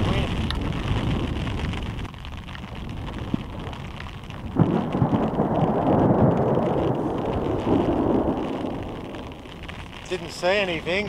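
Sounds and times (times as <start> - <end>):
rain falling: 0.0 - 11.0
thunder rumbling: 0.0 - 11.0.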